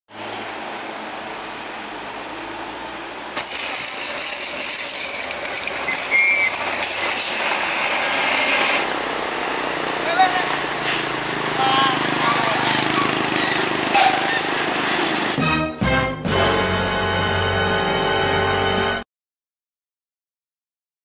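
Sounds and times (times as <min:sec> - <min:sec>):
heavy truck rolling past: 0:00.1 - 0:15.5
mechanical rattling and clicking: 0:03.4 - 0:08.2.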